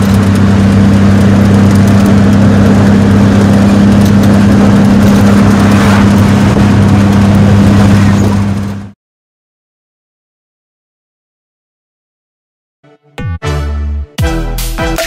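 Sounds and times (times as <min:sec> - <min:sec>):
car engine hum: 0:00.0 - 0:09.0
tyre and road noise: 0:00.0 - 0:09.0.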